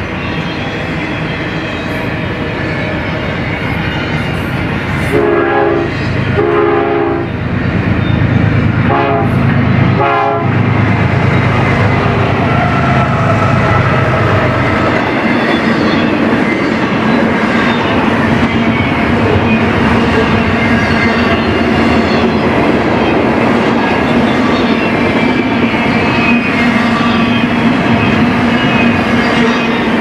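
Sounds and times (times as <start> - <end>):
freight train rumbling over rails: 0.0 - 30.0
locomotive air horn blasts: 5.1 - 7.3, 8.9 - 9.4, 10.0 - 10.6.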